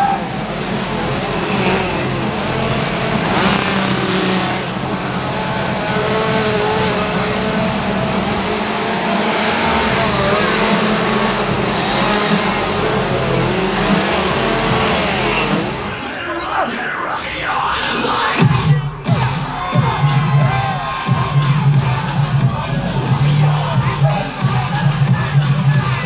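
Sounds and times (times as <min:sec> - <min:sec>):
chainsaws revving and idling: 0:00.0 - 0:16.1.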